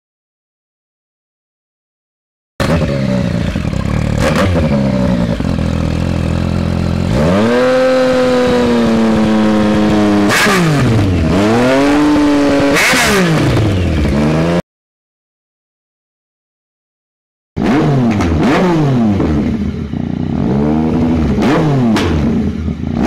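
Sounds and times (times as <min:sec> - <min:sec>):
motorcycle engine revving: 0:02.6 - 0:14.6, 0:17.6 - 0:23.0.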